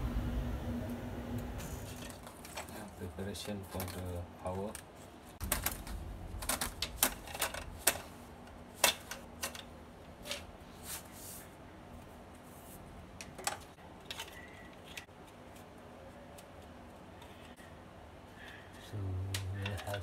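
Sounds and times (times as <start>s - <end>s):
faint steady hum: 0.0s - 20.0s
plastic parts clicking and tapping: 3.4s - 10.5s, 19.3s - 20.0s.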